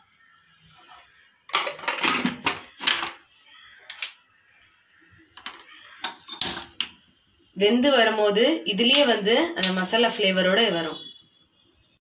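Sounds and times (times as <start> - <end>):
metal lid clacking: 1.5 - 3.2.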